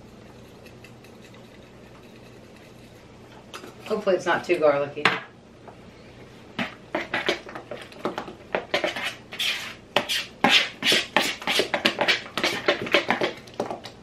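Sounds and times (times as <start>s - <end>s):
utensil scraping mixing bowl: 0.0s - 4.1s, 6.6s - 8.0s, 8.6s - 13.4s.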